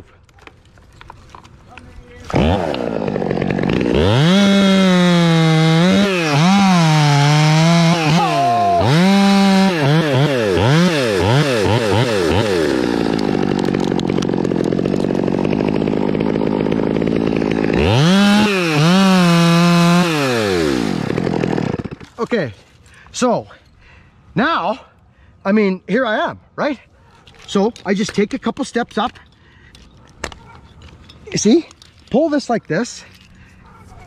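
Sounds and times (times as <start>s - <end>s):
chainsaw cutting wood: 1.0s - 22.5s
chainsaw revving: 2.2s - 22.3s.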